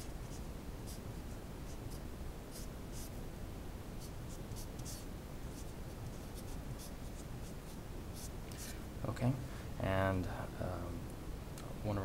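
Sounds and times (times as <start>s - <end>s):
marker scratching on paper: 0.0s - 3.2s, 4.0s - 8.7s.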